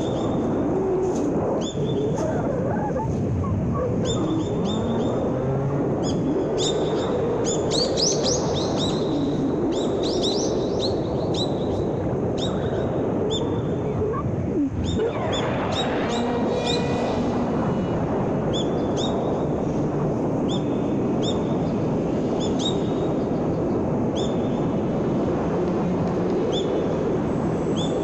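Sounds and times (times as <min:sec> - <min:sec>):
steady low rush: 0:00.0 - 0:27.8
small birds chirping: 0:01.6 - 0:17.0.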